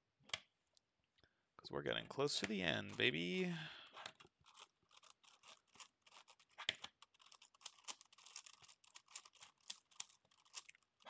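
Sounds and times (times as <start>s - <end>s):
twisty puzzle plastic clicking: 4.0s - 11.0s.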